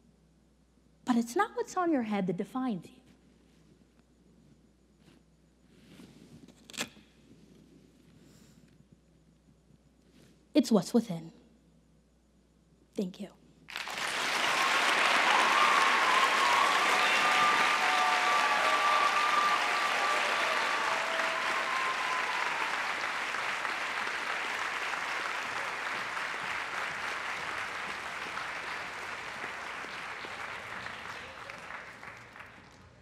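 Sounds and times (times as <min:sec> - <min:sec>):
audience applauding: 0:13.7 - 0:33.0
people cheering: 0:13.7 - 0:33.0.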